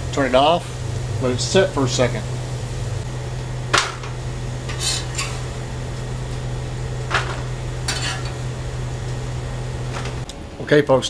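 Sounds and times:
steady sizzle: 0.0s - 10.4s
constant low hum: 0.0s - 11.0s
metal spatula scraping griddle: 4.6s - 5.6s, 7.1s - 8.4s.

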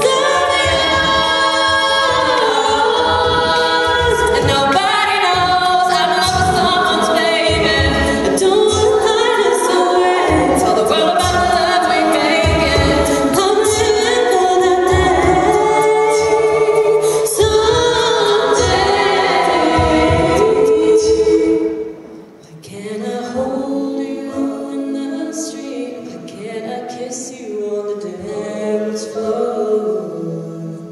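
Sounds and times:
women singing in harmony: 0.0s - 30.9s
steady low beat: 17.4s - 21.6s.

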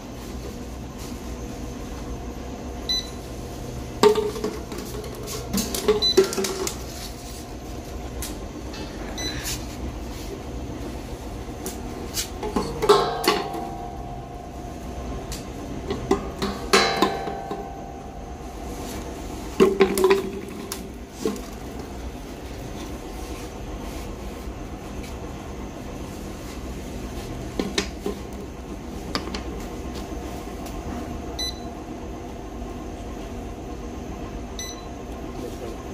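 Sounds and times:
machine humming: 0.0s - 35.9s
sharp ringing clanks: 16.7s - 18.3s.

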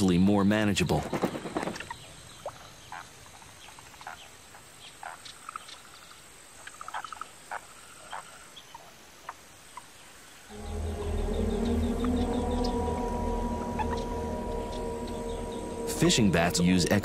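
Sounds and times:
frogs chirping and trilling: 1.8s - 17.0s
high insect drone: 10.2s - 17.0s.

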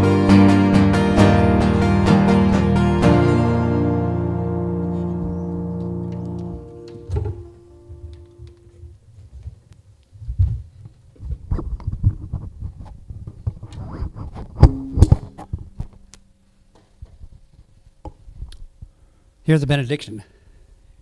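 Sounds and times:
guitar chord ringing: 0.0s - 9.0s, 14.6s - 16.5s
microphone handling thumps and rustles: 6.5s - 16.0s.

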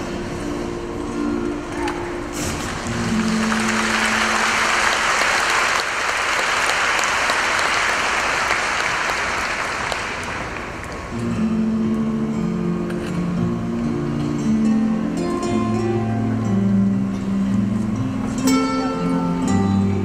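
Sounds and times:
acoustic guitars playing: 0.0s - 7.0s, 10.1s - 20.0s
audience applauding: 2.7s - 11.1s.

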